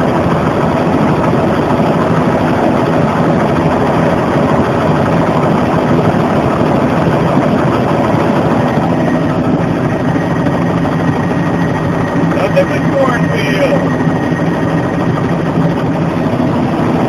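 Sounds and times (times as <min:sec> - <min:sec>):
helicopter engine and rotor drone: 0:00.0 - 0:17.0.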